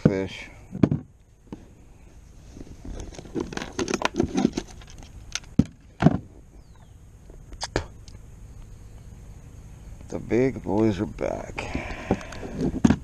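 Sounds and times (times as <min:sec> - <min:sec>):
handling rustles and knocks: 0:02.4 - 0:06.5, 0:11.8 - 0:13.0.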